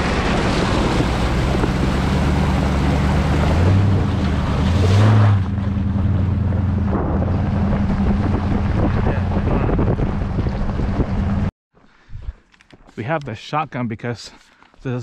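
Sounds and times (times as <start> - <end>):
water splashing off tyre: 0.0 - 6.1
tyres rolling on gravel: 0.0 - 10.9
vehicle engine hum: 0.0 - 11.5
wind on microphone: 6.8 - 11.5.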